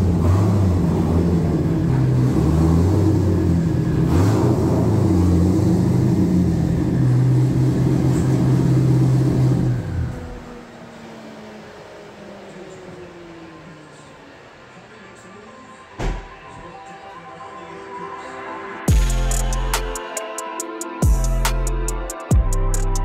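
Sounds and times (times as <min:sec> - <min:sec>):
car engine running: 0:00.0 - 0:14.8.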